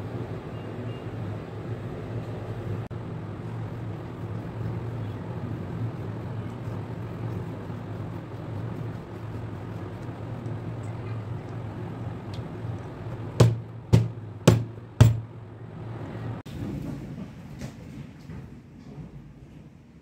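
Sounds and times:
low hum: 1.3s - 16.4s.

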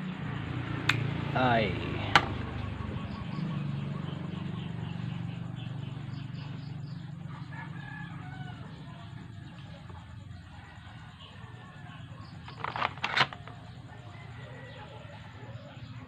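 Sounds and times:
rooster crowing: 7.3s - 9.1s, 13.9s - 15.9s.

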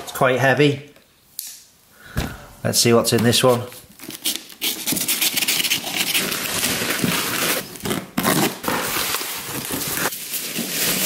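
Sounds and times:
packing material rustling: 3.3s - 11.0s
cardboard flaps scraping: 5.8s - 11.0s.

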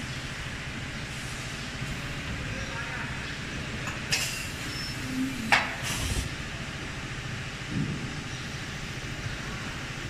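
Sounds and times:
short hiss: 5.7s - 6.4s.

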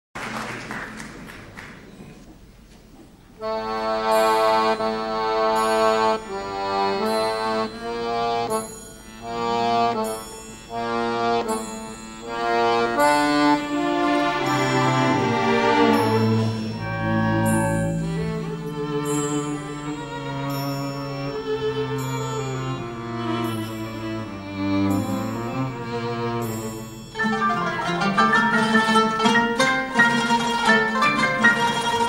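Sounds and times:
orchestra playing: 3.5s - 32.0s
hall noise: 12.2s - 26.4s.

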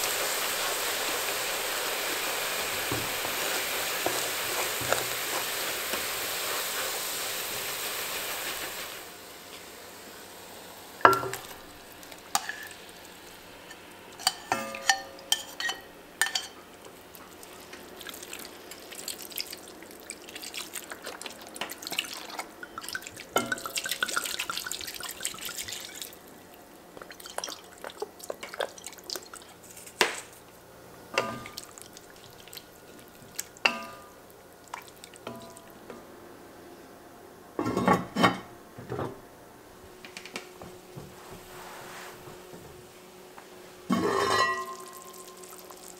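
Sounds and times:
wine pouring: 17.2s - 26.3s.

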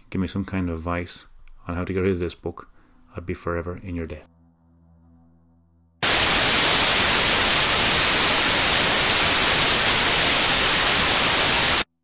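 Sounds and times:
television static hiss: 6.0s - 11.9s.

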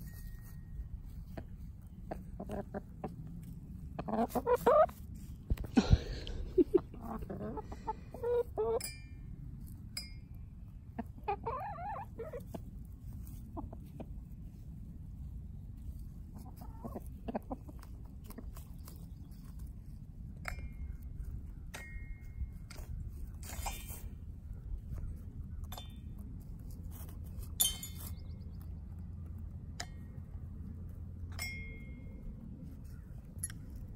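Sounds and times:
hens clucking: 1.2s - 8.8s, 10.9s - 14.4s, 16.2s - 19.7s.

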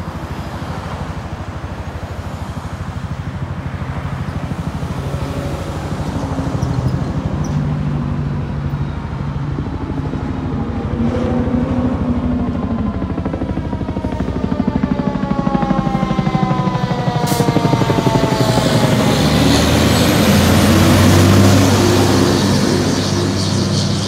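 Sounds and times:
helicopter rotor chop: 0.0s - 24.0s
rising whine: 10.1s - 24.0s.

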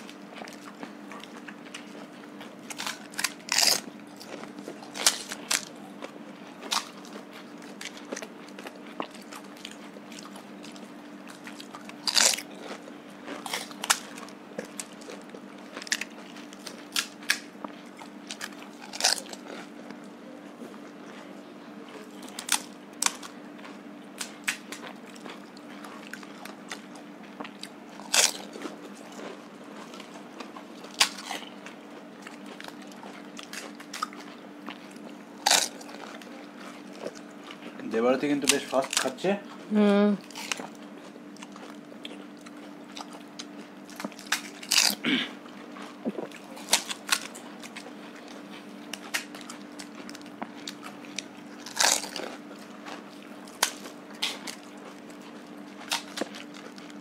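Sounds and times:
chewing: 0.0s - 57.0s
crisp shells cracking: 2.6s - 5.7s, 11.4s - 17.5s, 18.2s - 19.5s, 30.8s - 31.6s, 35.4s - 36.3s, 38.3s - 39.2s, 43.9s - 45.0s, 46.5s - 47.8s, 48.9s - 52.4s, 53.5s - 54.7s, 55.8s - 57.0s.

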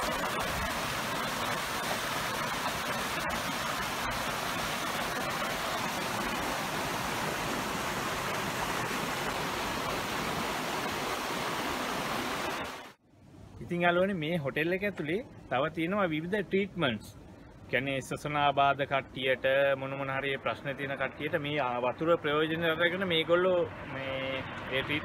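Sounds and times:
water rushing down concrete channel: 0.0s - 13.0s.

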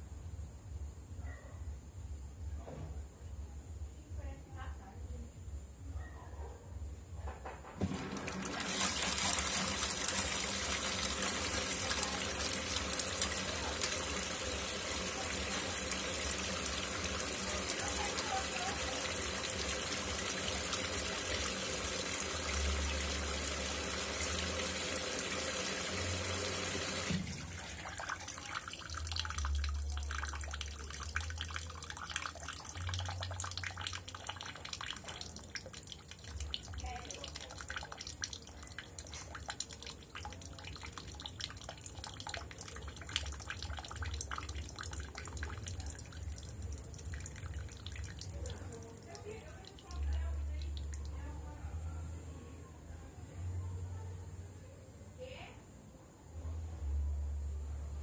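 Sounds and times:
laundry sloshing in water: 7.8s - 23.2s, 26.8s - 46.5s
washing machine motor humming: 7.8s - 38.5s
water pouring into drum: 7.8s - 51.2s.

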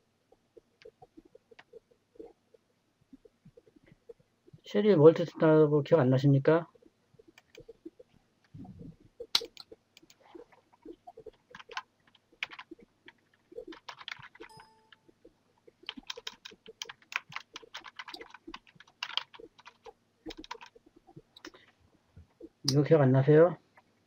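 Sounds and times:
computer keyboard key clicks: 9.4s - 10.2s, 15.9s - 20.7s.

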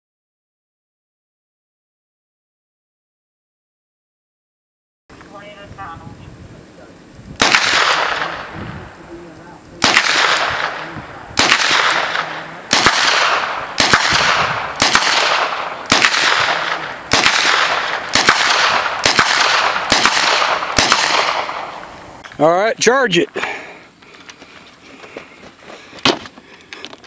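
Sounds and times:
submachine gun single shots: 7.4s - 8.6s, 9.8s - 21.8s.

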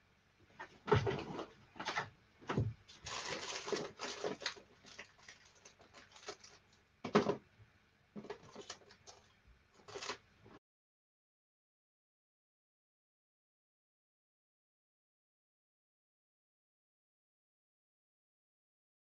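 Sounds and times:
rustling: 2.9s - 6.8s.

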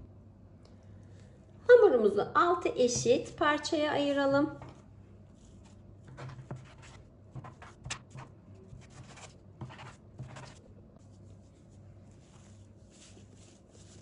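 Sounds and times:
hands handling dough: 4.5s - 14.0s
faint rustling: 11.0s - 14.0s.

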